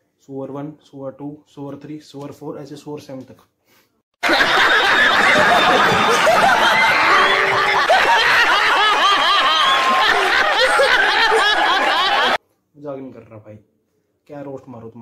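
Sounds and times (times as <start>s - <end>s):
man laughing hard: 4.2s - 12.4s
studio audience laughing: 4.2s - 12.4s.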